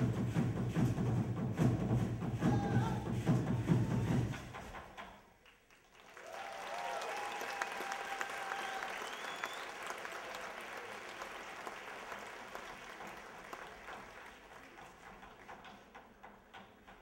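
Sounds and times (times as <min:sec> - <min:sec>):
audience applause: 0:05.4 - 0:15.7.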